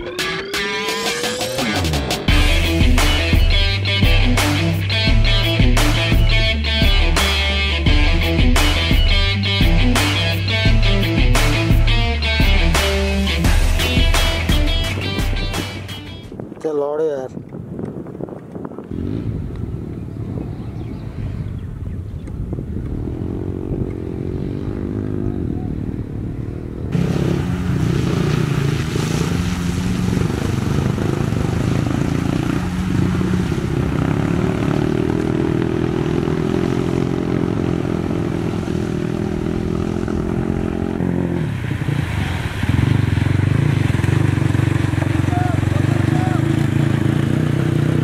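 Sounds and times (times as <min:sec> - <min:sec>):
dirt bike engine revving: 0:18.9 - 0:20.0, 0:22.7 - 0:48.0
water splashing from wheels: 0:27.0 - 0:48.0.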